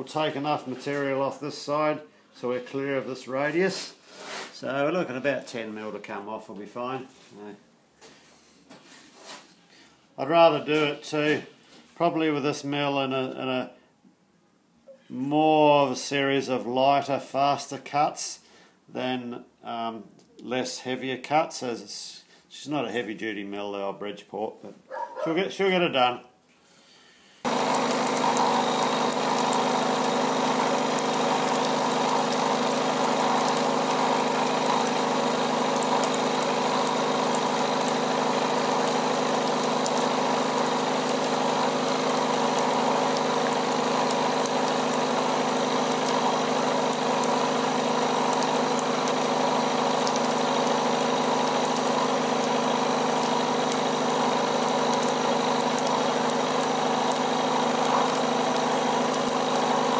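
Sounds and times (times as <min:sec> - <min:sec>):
milling machine cutting steel: 0:27.5 - 0:59.9.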